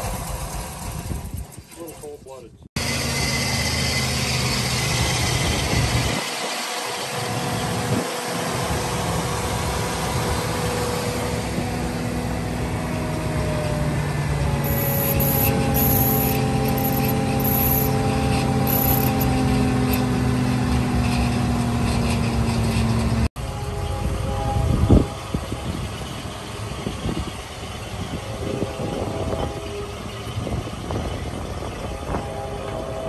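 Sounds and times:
truck engine running: 0:02.8 - 0:23.6.

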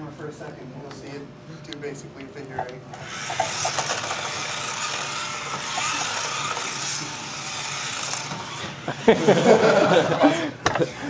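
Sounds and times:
toy car motor whirring: 0:03.0 - 0:09.6.

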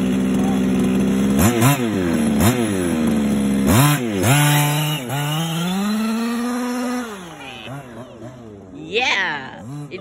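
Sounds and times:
rc car engine revving: 0:00.0 - 0:10.0.

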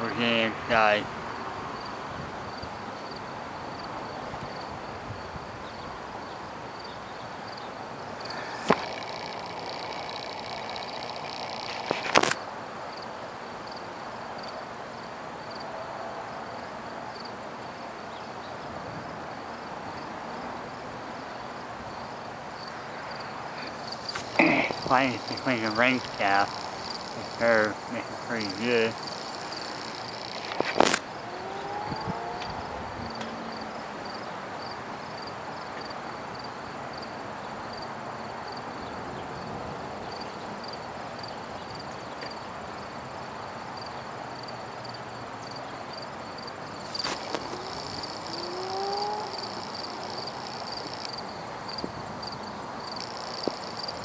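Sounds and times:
insects chirping: 0:00.0 - 0:54.0
sharp click: 0:30.4 - 0:31.0
wind rushing: 0:30.5 - 0:33.2.

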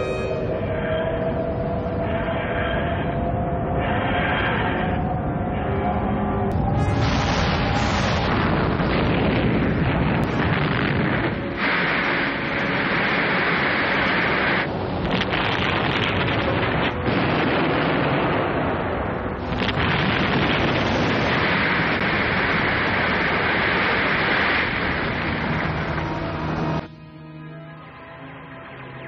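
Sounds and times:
explosion sound effect: 0:06.6 - 0:26.0.

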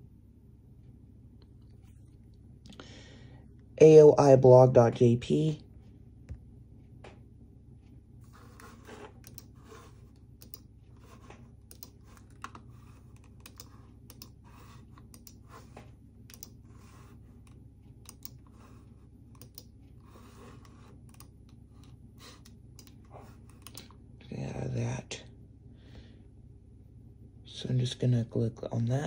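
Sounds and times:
low steady hum: 0:00.0 - 0:29.0
typing on keyboard: 0:10.4 - 0:10.7, 0:11.6 - 0:14.4, 0:15.0 - 0:15.4, 0:16.3 - 0:16.6, 0:17.4 - 0:18.4, 0:19.3 - 0:19.7.

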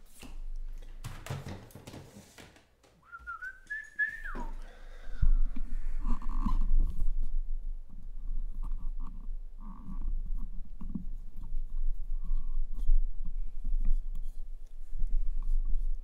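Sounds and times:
person whistling: 0:03.0 - 0:04.6.

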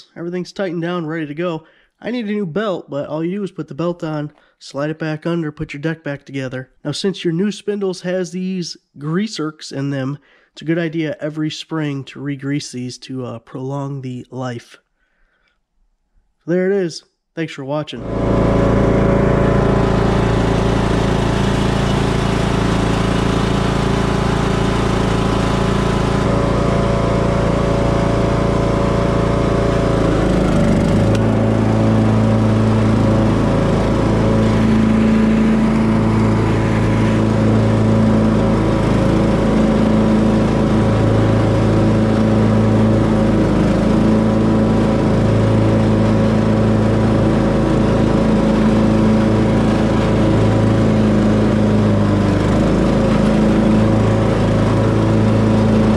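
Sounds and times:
riding lawn mower engine: 0:18.0 - 0:55.9.

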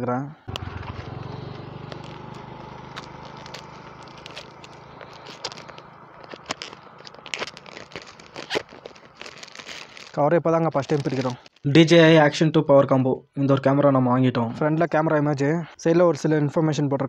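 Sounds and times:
plastic shrink-wrap crinkling: 0:00.5 - 0:11.7.

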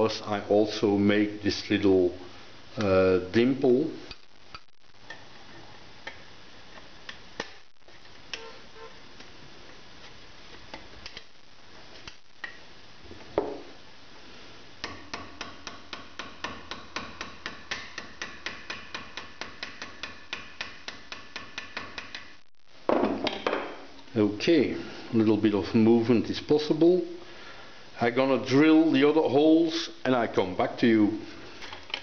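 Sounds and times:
hammer tapping on metal: 0:14.8 - 0:22.3.

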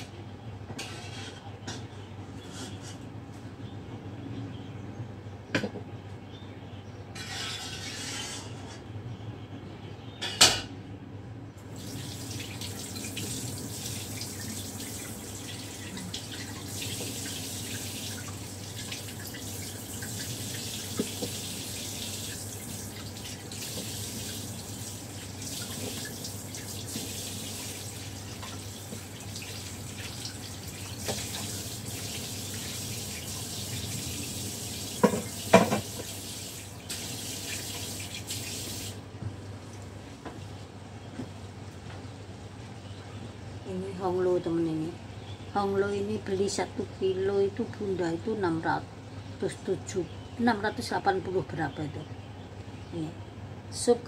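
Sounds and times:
tap water running into sink: 0:11.7 - 0:39.0.

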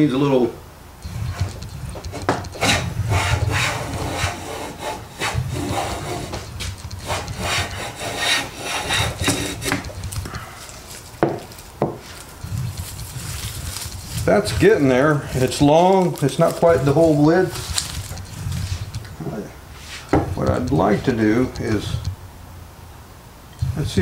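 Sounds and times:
hand plane rasping through wood: 0:01.1 - 0:10.0.

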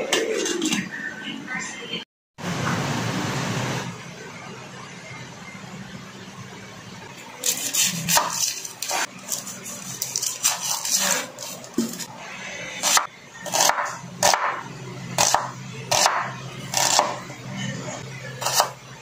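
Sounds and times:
knife chopping on wooden board: 0:12.9 - 0:14.6.

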